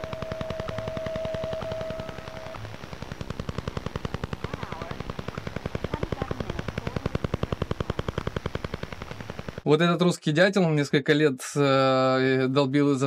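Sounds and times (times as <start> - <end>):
radio hiss: 0.0 - 9.6
rapid even radar tapping: 0.0 - 9.7.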